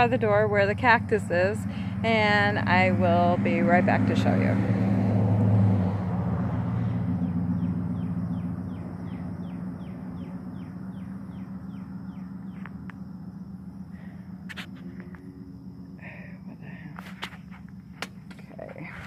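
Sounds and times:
low hum: 0.0s - 19.0s
low rumble: 0.0s - 19.0s
bird calling downward notes: 6.8s - 16.5s.

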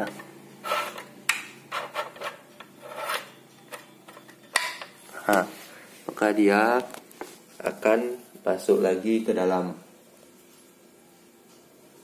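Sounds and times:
staples scraping: 0.0s - 1.1s, 1.7s - 3.4s.

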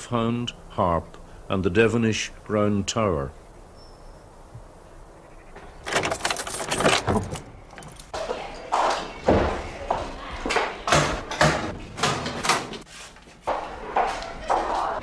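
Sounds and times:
door opening: 5.6s - 8.1s, 10.9s - 12.9s
key turning in door lock: 5.8s - 8.1s.

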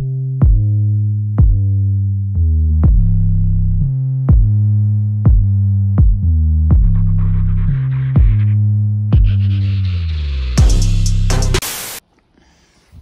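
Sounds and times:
drum machine beats: 0.0s - 0.8s, 1.4s - 1.8s, 2.8s - 9.6s, 10.6s - 11.8s
synth bass notes: 0.0s - 12.0s.

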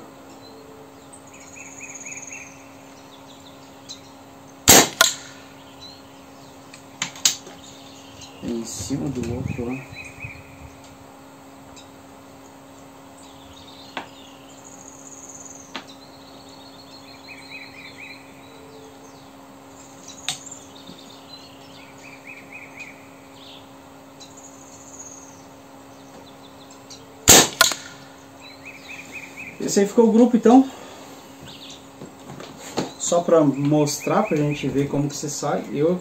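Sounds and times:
birds chirping: 0.0s - 36.0s
insects chirping: 0.0s - 36.0s
air rifle shot: 4.7s - 5.5s, 27.3s - 28.0s
rifle handling clicks: 27.6s - 27.9s.

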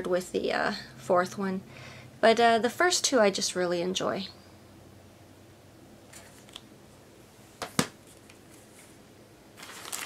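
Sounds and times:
paper envelopes rustling: 6.1s - 6.6s, 9.6s - 10.0s.

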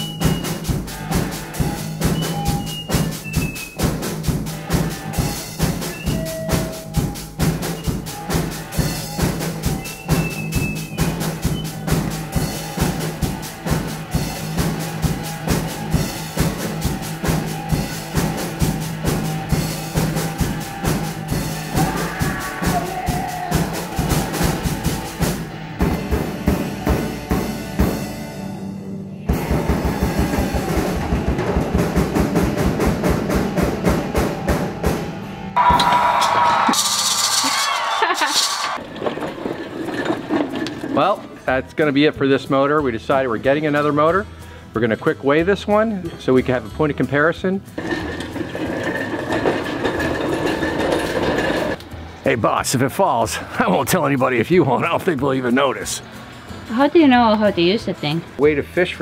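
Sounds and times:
music with drum-kit beat: 0.0s - 38.8s.

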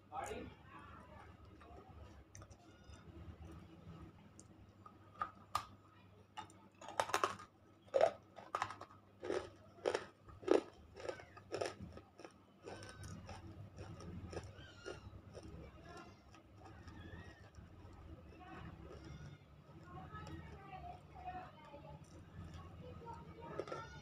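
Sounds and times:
teeth crunching clay: 6.8s - 20.6s, 22.0s - 24.0s.

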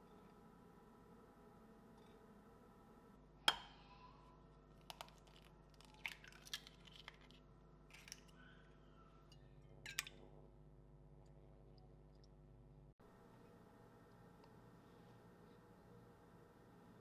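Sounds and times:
faint steady hum: 0.0s - 17.0s
eggs cracking into bowl: 4.8s - 8.3s.

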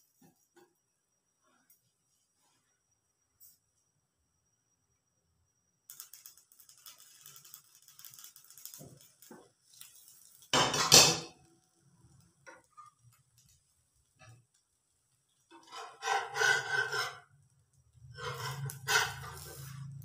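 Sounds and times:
glass lid clattering on metal: 10.6s - 11.3s.

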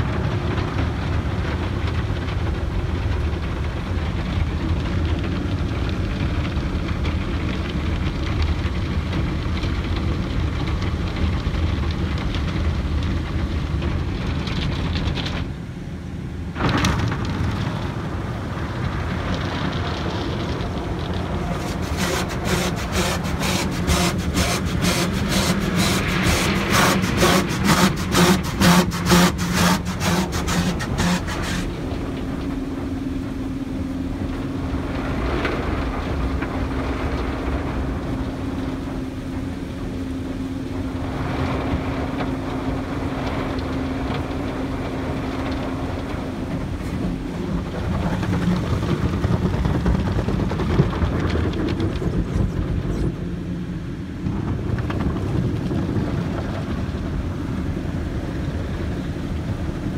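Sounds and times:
wash motor humming: 0.0s - 59.9s
water rushing and scrubbing: 13.8s - 59.9s
brushes slapping against glass: 21.5s - 31.7s.

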